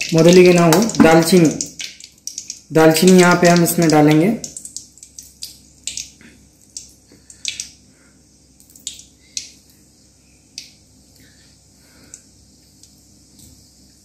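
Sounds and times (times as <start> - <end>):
oil crackling and popping: 0.0 - 7.8, 8.6 - 9.7.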